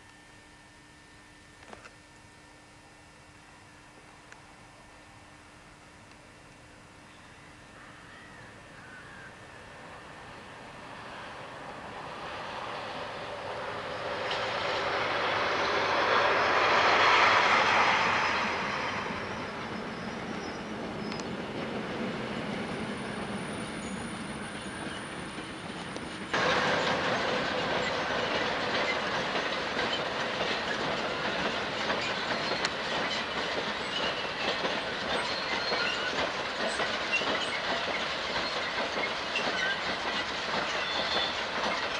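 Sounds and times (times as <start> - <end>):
diesel locomotive passing: 7.2 - 41.9
train wheels clattering over rail joints: 13.2 - 22.7, 24.8 - 41.9.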